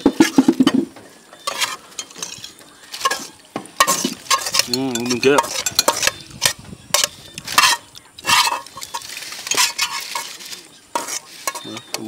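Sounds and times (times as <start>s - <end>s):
foil crinkling and rustling: 7.4s - 12.0s.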